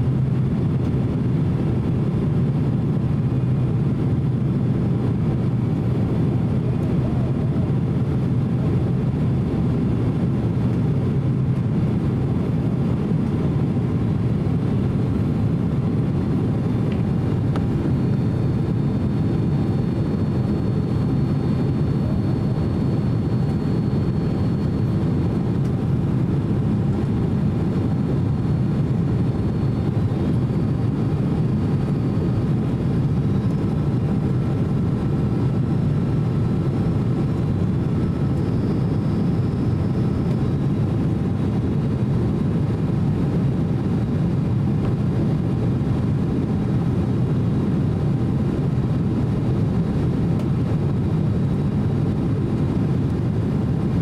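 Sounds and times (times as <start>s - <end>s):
airliner cabin airflow and engines: 0.0s - 54.0s
faint high whine: 2.4s - 43.2s.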